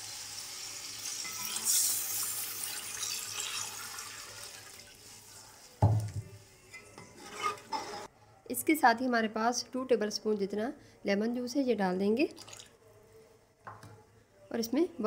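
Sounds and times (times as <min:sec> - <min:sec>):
stock pouring and splashing into pot: 0:01.0 - 0:05.2.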